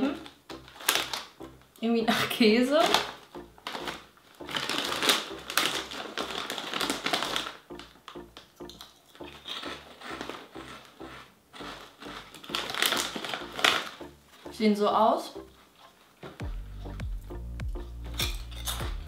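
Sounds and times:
snack bag crinkling: 0.0 - 1.7, 2.8 - 14.6
crunchy chips being chewed: 0.2 - 1.4, 2.8 - 14.2.

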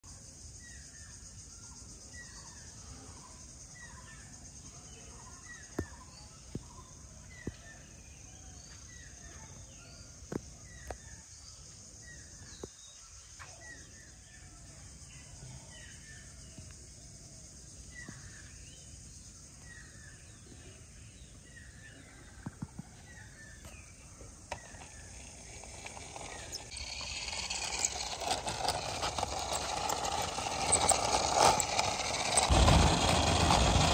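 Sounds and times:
toy car rolling on wall: 21.5 - 33.9.

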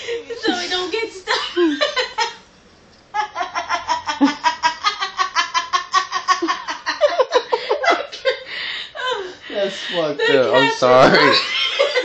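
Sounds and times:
person laughing hard: 3.2 - 9.3.

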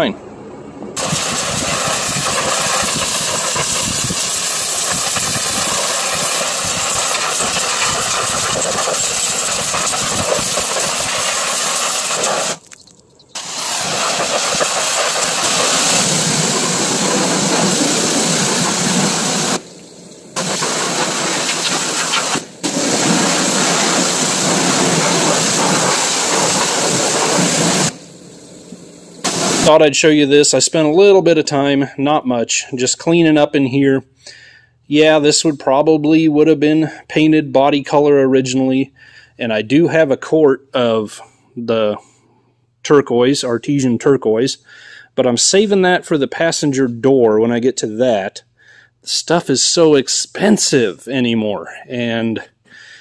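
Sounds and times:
pressure washer spraying water: 1.0 - 12.8, 13.4 - 29.7.

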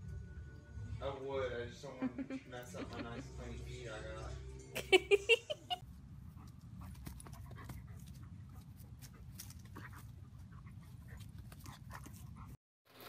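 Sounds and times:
dog panting: 5.8 - 12.6.

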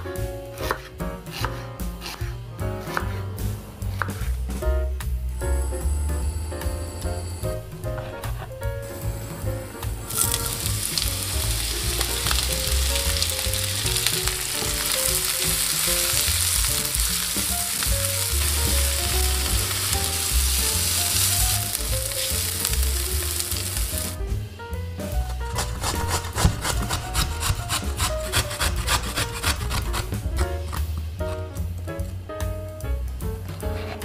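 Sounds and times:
background music: 0.0 - 34.0
wooden spatula stirring: 9.2 - 24.2, 25.3 - 30.8
onions sizzling in oil: 10.0 - 24.2.

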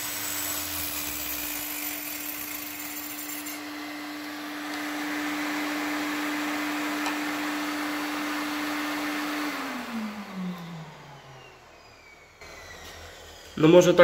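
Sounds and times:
circular saw spinning down: 0.0 - 14.0.

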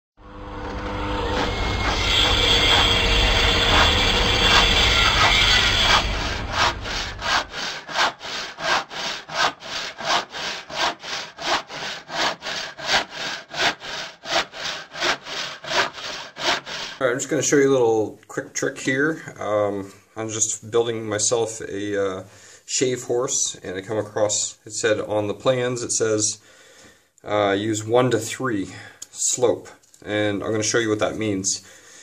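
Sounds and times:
continuous low rumbling noise: 0.2 - 7.6
hand saw cutting wood: 0.6 - 17.1.

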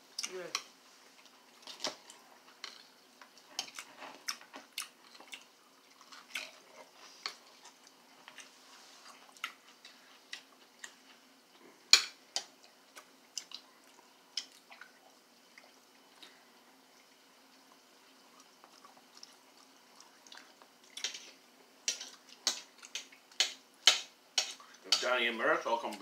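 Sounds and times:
chewing: 0.2 - 16.4, 17.0 - 23.4
cutlery clicking on plate: 21.0 - 25.1.

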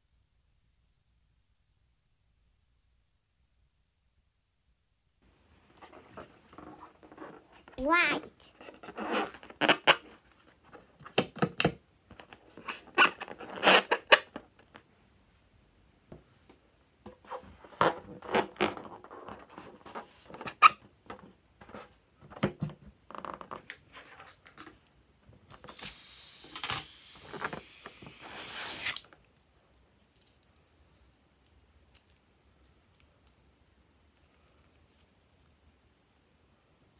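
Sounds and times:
rubber balloon squeaking: 12.8 - 14.2
steady hiss: 25.5 - 31.4.

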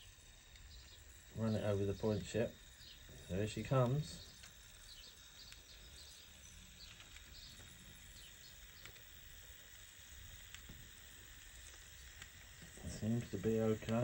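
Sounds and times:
model train motor hum: 0.0 - 14.0
wheels rolling over track: 0.0 - 14.0.

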